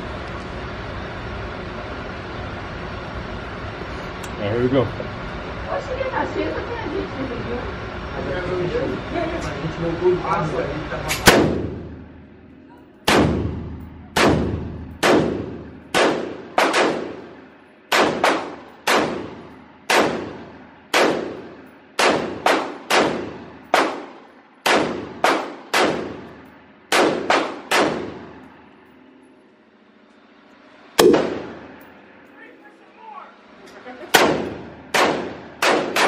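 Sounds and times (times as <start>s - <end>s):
gunshots echoing indoors: 11.1s - 12.0s, 13.0s - 28.5s, 31.0s - 31.8s, 34.1s - 36.0s.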